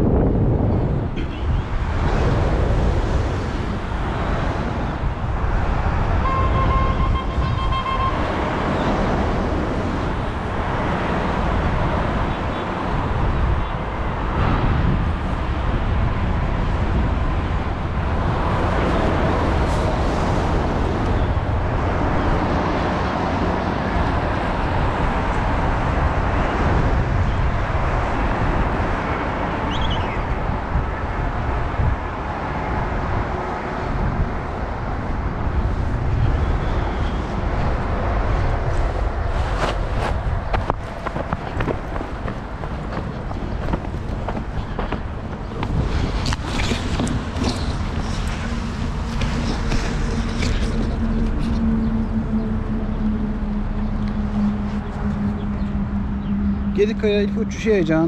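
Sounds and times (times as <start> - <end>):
road traffic: 0.0 - 58.0
wind buffeting microphone: 0.0 - 58.0.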